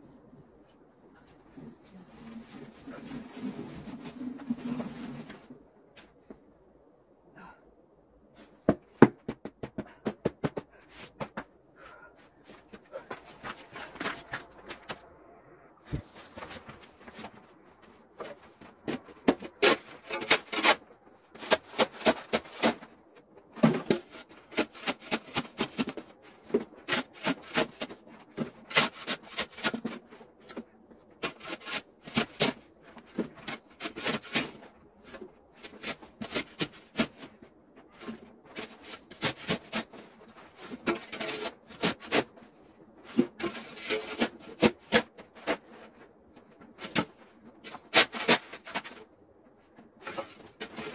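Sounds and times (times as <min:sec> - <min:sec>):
metal shovel scraping snow: 0:19.4 - 0:22.9, 0:33.2 - 0:42.4, 0:43.0 - 0:46.0.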